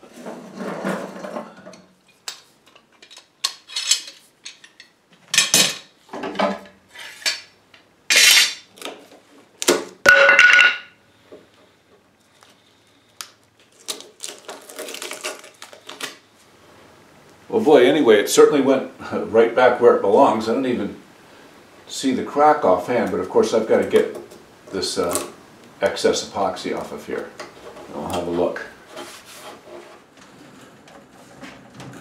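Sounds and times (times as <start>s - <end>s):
metal clamps clinking and scraping: 3.0s - 7.5s, 8.1s - 8.7s
tape peeling off wood: 13.2s - 16.2s.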